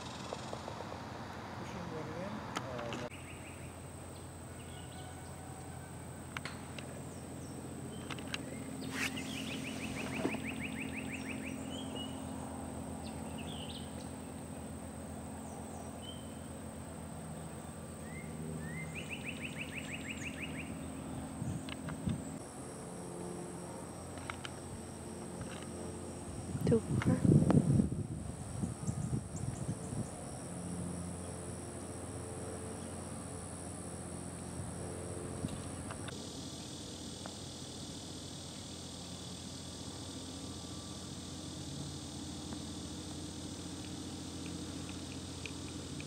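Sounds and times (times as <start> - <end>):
insect drone: 0.0 - 46.0
birds chirping: 7.0 - 12.4, 17.4 - 22.4
bird trill: 7.1 - 12.3, 18.0 - 21.3.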